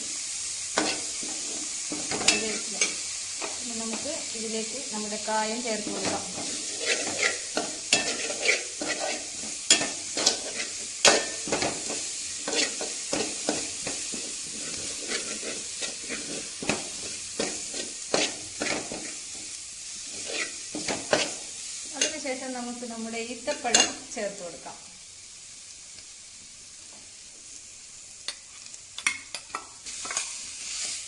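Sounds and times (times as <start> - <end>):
oil sizzling in a pan: 0.0 - 31.0
metal spoon scraping a pan: 0.8 - 4.1, 5.7 - 22.2, 28.3 - 31.0.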